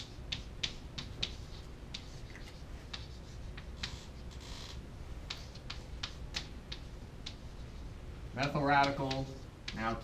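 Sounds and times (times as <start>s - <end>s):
chalk tapping and scratching: 0.0s - 4.6s, 5.2s - 10.0s.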